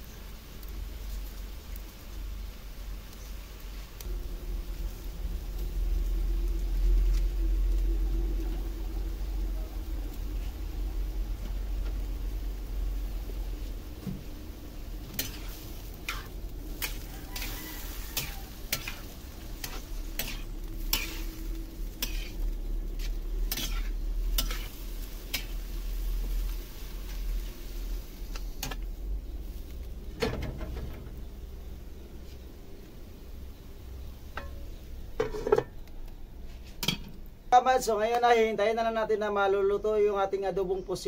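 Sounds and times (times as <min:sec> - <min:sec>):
food sizzling: 0:00.0 - 0:39.0
metal spatula scraping wok: 0:15.0 - 0:28.8, 0:35.2 - 0:35.8.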